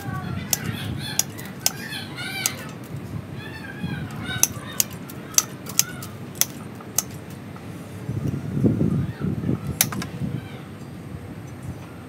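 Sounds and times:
pruning shears snipping twigs: 0.0s - 3.0s, 4.1s - 7.4s
short high wavering calls: 0.0s - 6.2s.

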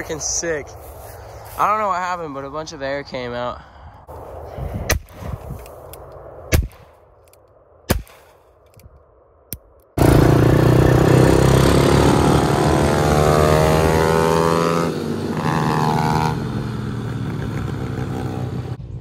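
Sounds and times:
wind rush on microphone: 3.7s - 6.9s
dirt bike engine running: 10.0s - 18.8s.

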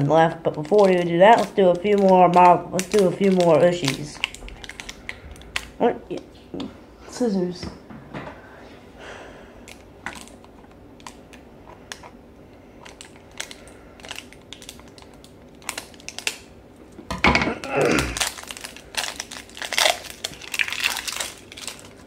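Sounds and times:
plastic wrapper crinkling: 0.0s - 6.2s, 9.6s - 16.5s, 17.5s - 22.0s.

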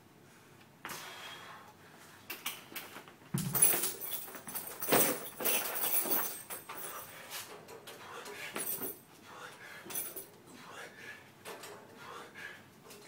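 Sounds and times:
knocks and thuds of gym equipment: 3.3s - 4.1s.

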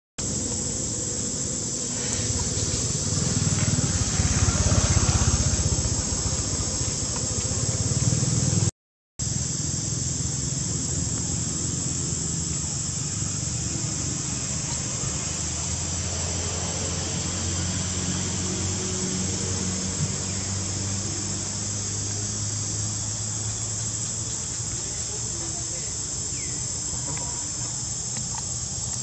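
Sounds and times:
insects buzzing: 0.2s - 29.0s.

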